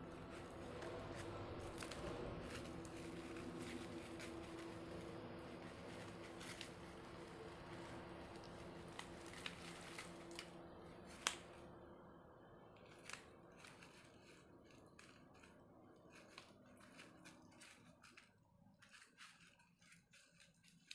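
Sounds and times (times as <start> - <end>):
puppy gnawing on a slipper: 0.0 - 11.5
faint low hum: 0.0 - 20.9.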